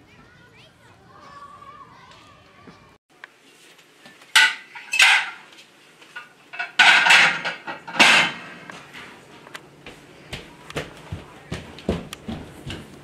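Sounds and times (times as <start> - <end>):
dishes clattering and clinking: 4.3 - 9.1.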